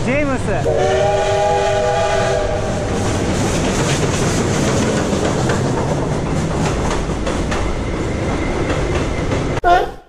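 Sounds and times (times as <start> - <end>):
train rumble and wheel clatter: 0.0 - 9.8
steam locomotive whistle: 0.6 - 2.9.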